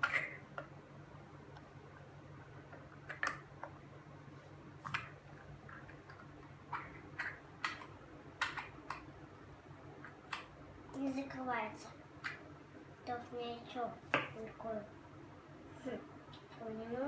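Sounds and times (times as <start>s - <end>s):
plastic capsule clicks and taps: 5.9s - 9.1s.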